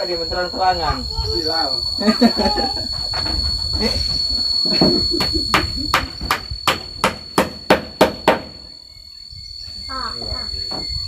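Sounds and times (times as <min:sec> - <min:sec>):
hammer striking nail: 0:05.5 - 0:08.6.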